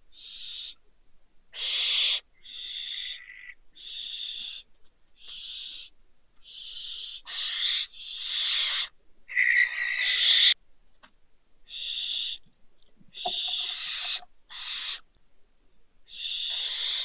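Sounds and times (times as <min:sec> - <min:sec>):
barn owl screech calls: 0:00.1 - 0:00.8, 0:01.5 - 0:10.6, 0:11.7 - 0:12.4, 0:13.1 - 0:15.1, 0:16.1 - 0:17.0.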